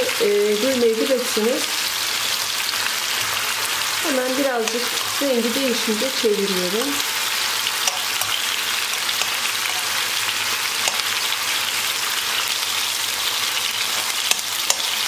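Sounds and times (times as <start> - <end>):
chicken sizzling in oil: 0.0 - 15.0
metal tongs clicking: 4.6 - 4.9, 7.8 - 9.9, 10.8 - 11.1, 13.9 - 15.0.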